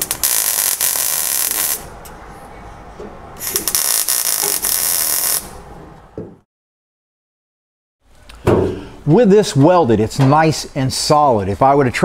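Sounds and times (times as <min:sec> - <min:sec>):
welder arc crackling and buzzing: 0:00.0 - 0:02.0, 0:03.4 - 0:05.6.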